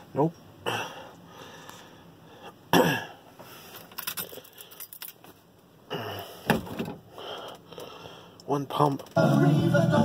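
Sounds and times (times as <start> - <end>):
person clearing throat: 2.7 - 3.2
ignition keys jingling: 3.7 - 5.4.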